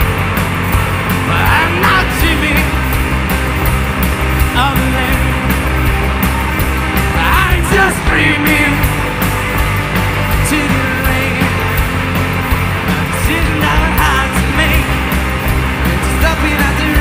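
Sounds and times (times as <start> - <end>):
drum kit with cymbal beat: 0.0 - 17.0
electric guitars: 0.0 - 17.0
person singing: 1.2 - 3.0, 7.1 - 9.2, 10.4 - 11.7, 12.8 - 15.1, 15.8 - 17.0.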